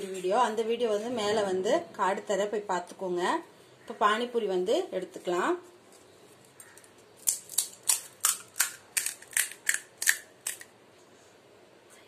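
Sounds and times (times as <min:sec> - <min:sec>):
crisp shell crunching: 0:06.4 - 0:10.7.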